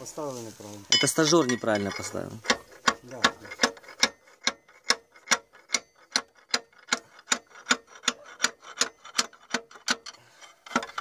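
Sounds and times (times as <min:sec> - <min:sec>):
hammer tapping on metal: 0:01.0 - 0:08.6.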